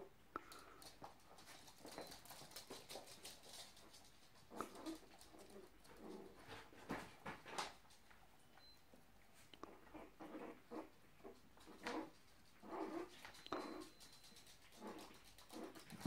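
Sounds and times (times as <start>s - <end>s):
dog claws pattering on laminate floor: 0.4s - 8.2s, 11.2s - 16.0s.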